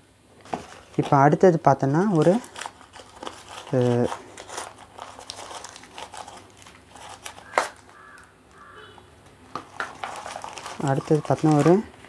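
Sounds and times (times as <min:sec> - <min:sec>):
cardboard and paper rustling: 0:00.4 - 0:08.7, 0:09.5 - 0:12.0.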